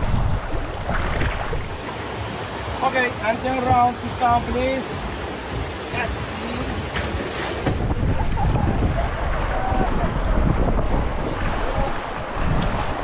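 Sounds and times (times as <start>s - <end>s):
wind buffeting microphone: 0.0s - 1.8s, 7.6s - 13.0s
rushing river water: 0.0s - 13.0s.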